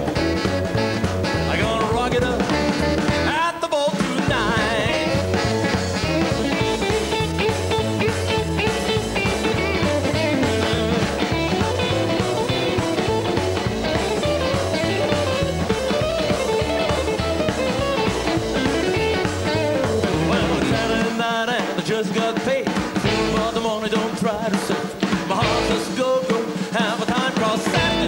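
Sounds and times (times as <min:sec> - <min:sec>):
double bass: 0:00.0 - 0:03.4, 0:04.2 - 0:21.1, 0:23.0 - 0:23.7, 0:25.4 - 0:25.9, 0:27.7 - 0:28.0
drum kit: 0:00.0 - 0:28.0
electric guitar: 0:00.0 - 0:28.0
man singing: 0:01.3 - 0:06.7, 0:19.5 - 0:28.0.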